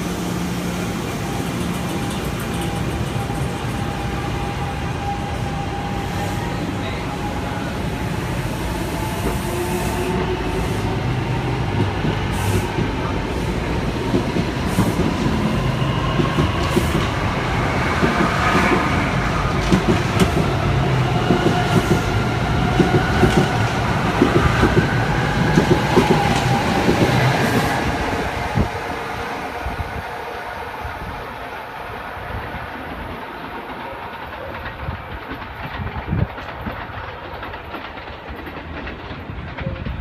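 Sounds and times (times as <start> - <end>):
wheels clicking over rail joints: 33.7 - 40.0.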